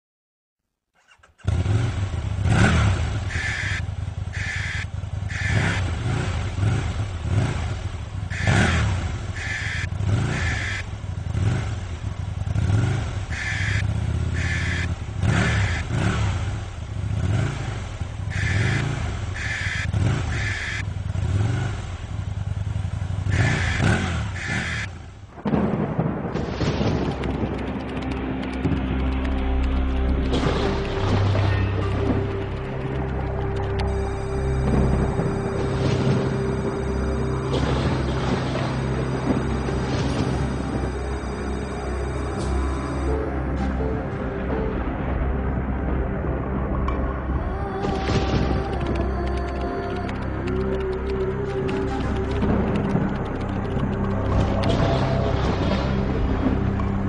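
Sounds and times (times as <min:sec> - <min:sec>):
motorcycle engine revving: 0:01.0 - 0:26.2, 0:26.8 - 0:44.0, 0:47.6 - 0:57.0
music: 0:26.0 - 0:57.0.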